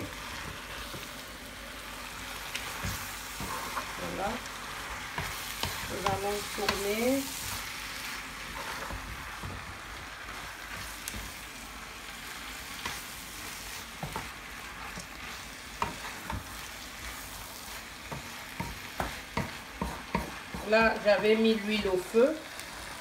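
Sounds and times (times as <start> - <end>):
food sizzling in oil: 0.0 - 23.0
wooden spatula scraping a pan: 2.5 - 11.4, 12.8 - 23.0.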